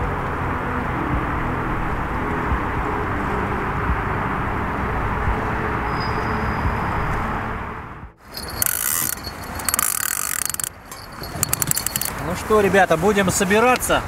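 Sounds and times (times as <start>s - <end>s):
scraping and clicking: 8.3s - 12.3s
choppy water around boat: 8.3s - 14.0s.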